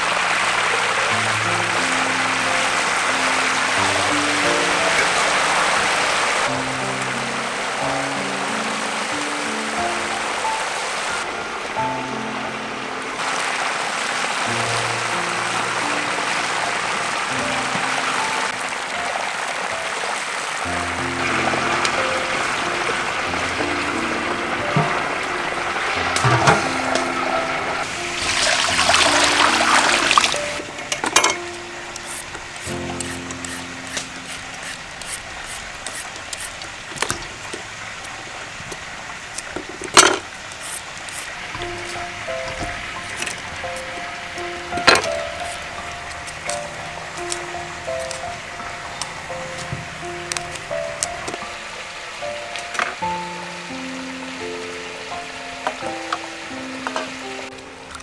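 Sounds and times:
soft background music: 0.0 - 36.0, 40.6 - 58.0
oil sizzling and crackling: 0.0 - 58.0
peeler scraping carrot: 32.0 - 36.6, 40.5 - 41.3, 45.4 - 45.6.

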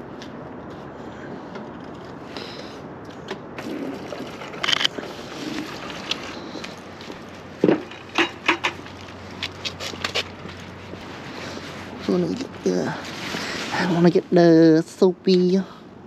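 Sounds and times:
sharp clicks and knocks: 7.6 - 8.8.

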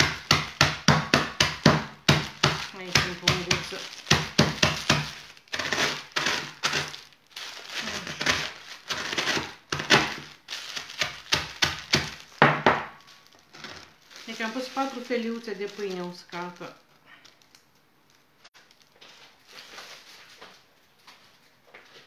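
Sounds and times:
rolling pin pounding on board: 0.0 - 6.8, 8.2 - 10.3, 10.9 - 13.0.

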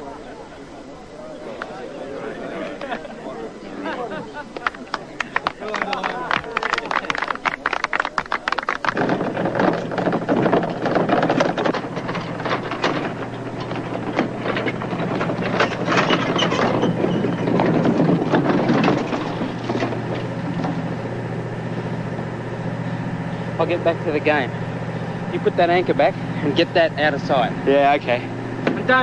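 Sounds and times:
engine idling: 2.6 - 29.0
heavy object clattering: 8.8 - 22.3.

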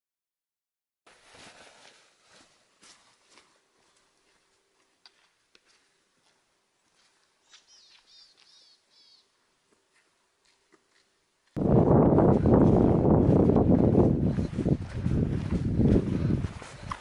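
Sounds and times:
small bird chirping: 7.4 - 9.3.

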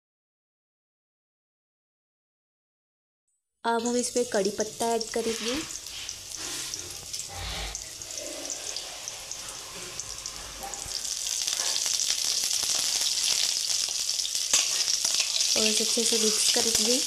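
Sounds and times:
onions sizzling in hot oil: 3.7 - 17.0.

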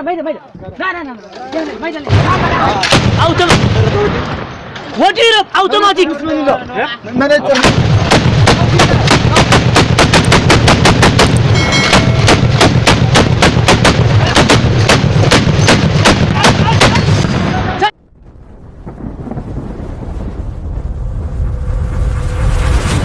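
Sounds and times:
machine gun firing: 7.6 - 17.3
low rumble: 17.1 - 23.0.

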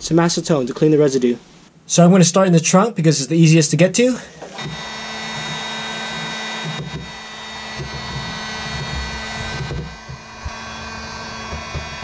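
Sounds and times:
heat gun fan and motor whine: 4.3 - 12.0.

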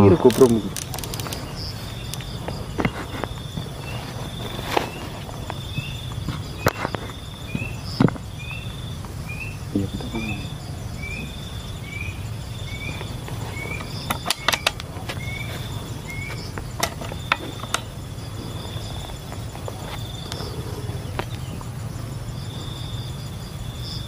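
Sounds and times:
high insect buzz: 0.0 - 24.0
air rifle handling clicks: 0.3 - 1.4, 14.1 - 14.9.

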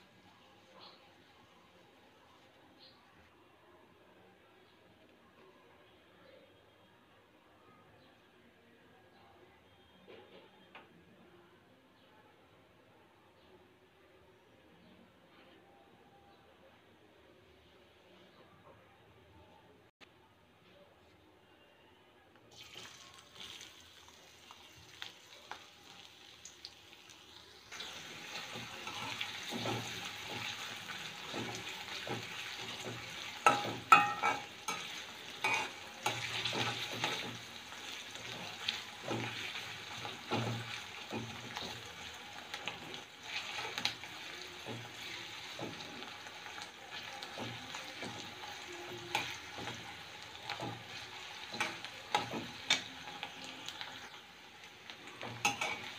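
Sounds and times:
onions sizzling in hot oil: 22.5 - 55.9
metal spatula scraping wok: 31.2 - 37.5.

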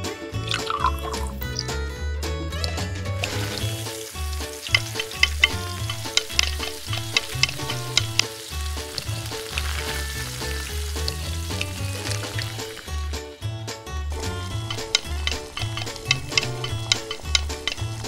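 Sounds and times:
vegetables sizzling in oil: 3.1 - 13.4, 14.1 - 18.0
metal spoon tapping pan: 3.2 - 8.3, 14.2 - 18.0.

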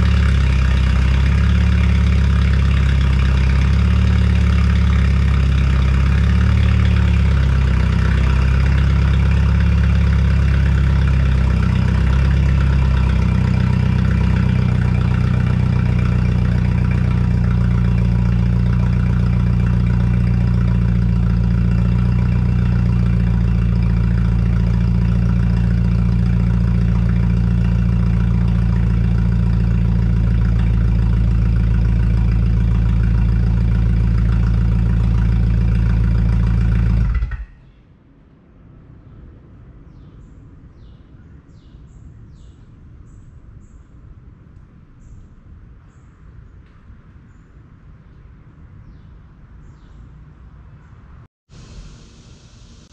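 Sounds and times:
car engine idling: 0.0 - 37.5.

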